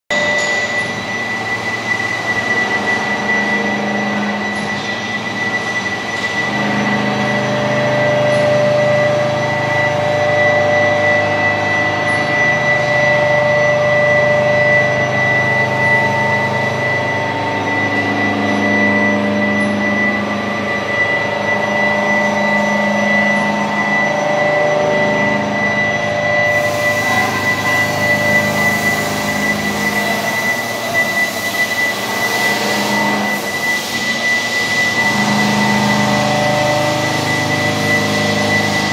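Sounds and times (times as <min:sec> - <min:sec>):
high-pitched machine whine: 0:00.1 - 0:38.9
machine tools droning: 0:00.1 - 0:38.9
loud hiss: 0:26.5 - 0:35.1.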